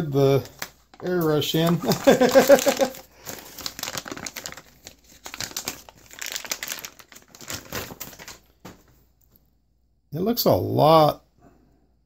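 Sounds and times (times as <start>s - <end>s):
plastic bag crinkling: 0.1s - 8.9s.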